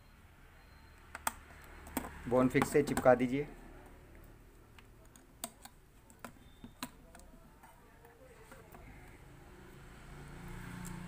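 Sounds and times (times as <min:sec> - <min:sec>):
metal tweezers clicking on plastic: 0:04.2 - 0:09.2.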